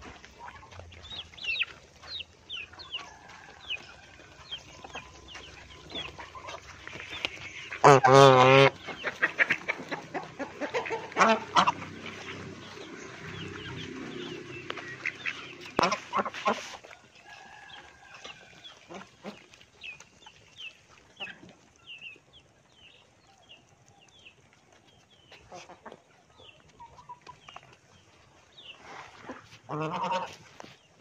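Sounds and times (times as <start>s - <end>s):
geese honking: 0.0s - 19.6s, 29.1s - 30.4s
ducks quacking: 0.0s - 21.8s, 25.3s - 30.8s
chickens clucking: 0.0s - 31.0s.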